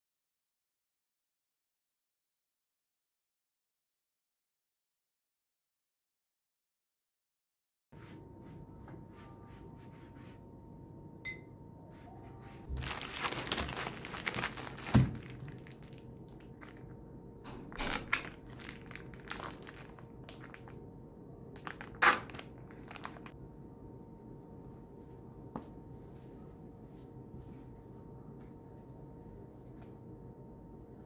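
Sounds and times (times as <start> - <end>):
packaging crinkling and rustling: 12.7 - 20.8, 21.6 - 23.4.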